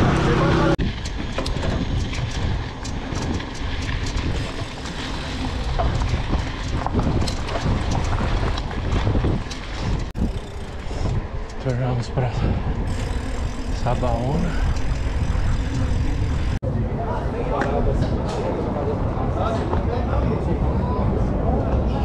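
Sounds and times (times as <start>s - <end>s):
bike rattling over rough ground: 0.0s - 16.6s
wind buffeting microphone: 0.0s - 22.0s.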